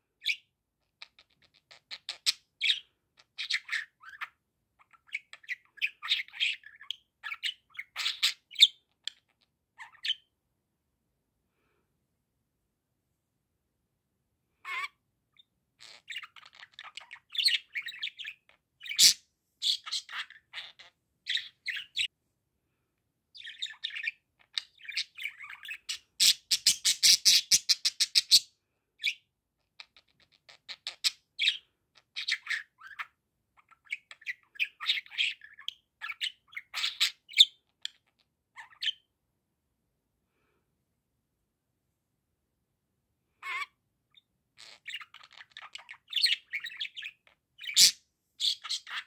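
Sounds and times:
budgerigar chattering: 0:05.1 - 0:09.2, 0:15.8 - 0:22.1, 0:23.4 - 0:28.4.

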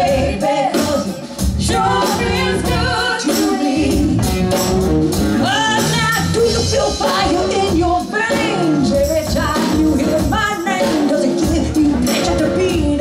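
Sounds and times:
women singing: 0:00.0 - 0:04.3, 0:05.4 - 0:13.0
drums: 0:00.0 - 0:13.0
electric bass guitar: 0:01.4 - 0:03.1, 0:03.8 - 0:10.4, 0:11.4 - 0:13.0.

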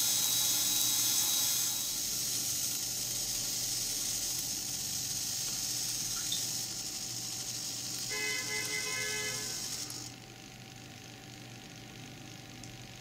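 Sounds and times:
small motor whirring: 0:00.0 - 0:10.2.

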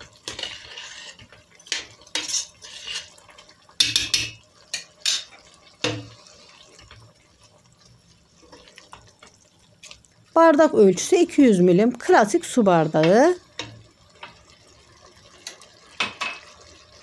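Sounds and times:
spoon knocking against pot: 0:03.8 - 0:06.1, 0:16.0 - 0:16.5.

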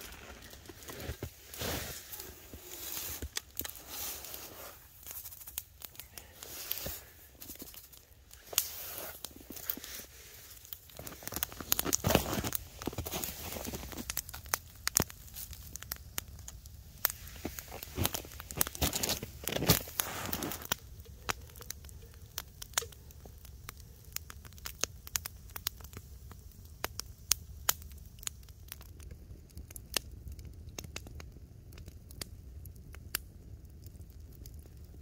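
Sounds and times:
campfire crackling and popping: 0:00.0 - 0:35.0.

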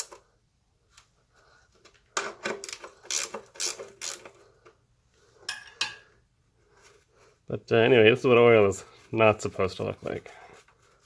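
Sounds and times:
ratchet wrench clicking: 0:02.7 - 0:04.3.

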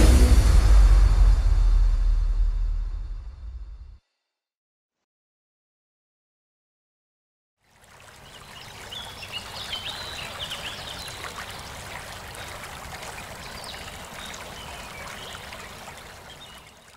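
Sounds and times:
river water flowing: 0:07.6 - 0:16.9
small birds chirping: 0:08.1 - 0:16.9.

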